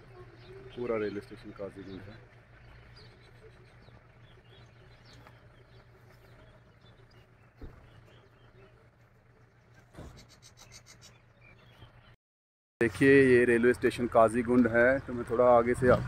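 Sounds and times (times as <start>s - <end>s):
distant bird chirps: 0.0s - 12.2s.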